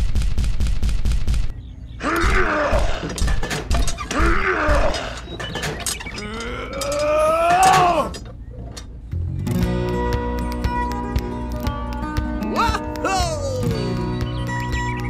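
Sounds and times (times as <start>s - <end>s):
loud growling groans: 6.2s - 8.2s.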